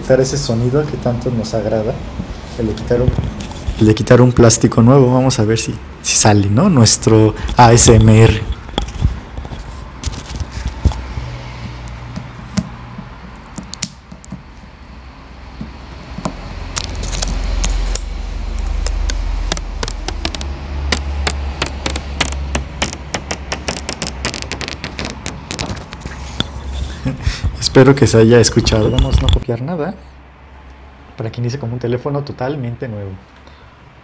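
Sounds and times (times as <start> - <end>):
microphone handling noise: 3.0 - 4.0, 7.2 - 12.4, 16.8 - 27.8, 28.5 - 29.4
plastic film peeling crackle: 16.8 - 26.2.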